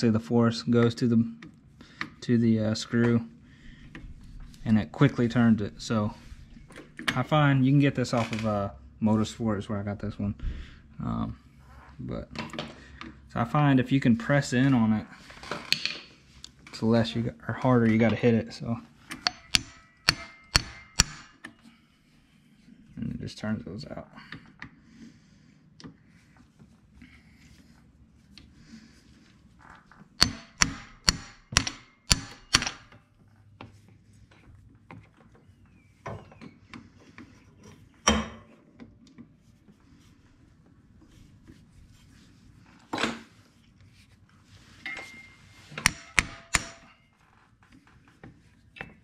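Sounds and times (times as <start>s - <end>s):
hammer striking impact screwdriver: 19.1s - 21.5s, 30.2s - 33.0s, 45.8s - 46.9s.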